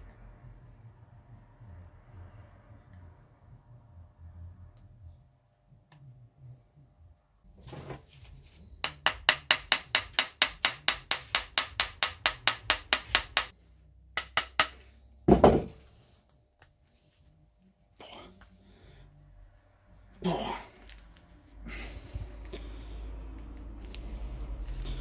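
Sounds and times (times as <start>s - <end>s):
hammer tapping on metal: 8.8s - 13.6s, 14.2s - 15.7s.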